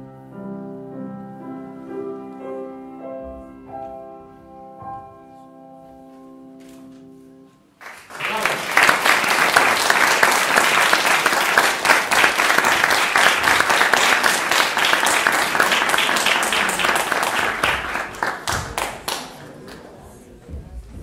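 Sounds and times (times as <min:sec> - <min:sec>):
audience applauding: 0:07.8 - 0:20.1.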